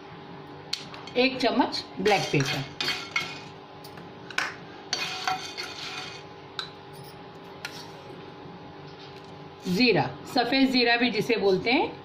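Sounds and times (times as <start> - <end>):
spoon scraping spices in a pan: 2.0 - 3.5, 4.9 - 6.3.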